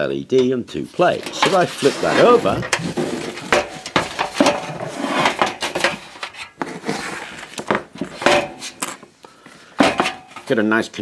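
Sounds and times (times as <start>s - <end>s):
sheet metal clanking and scraping: 0.4s - 7.2s, 8.0s - 9.1s, 9.8s - 10.5s.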